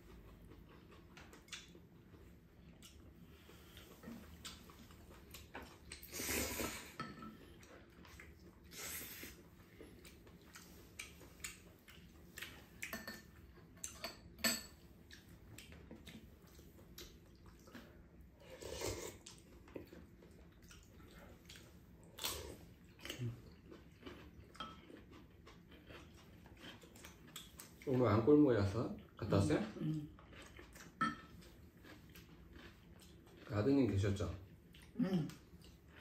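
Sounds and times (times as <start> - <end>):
chewing: 0.0 - 14.1, 14.8 - 28.0, 28.9 - 36.0
utensils clinking on ceramic bowls: 12.9 - 14.8.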